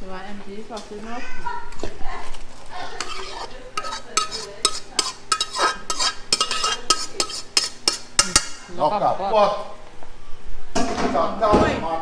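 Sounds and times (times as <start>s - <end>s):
metal tool clinking on metal pot: 3.0s - 8.7s.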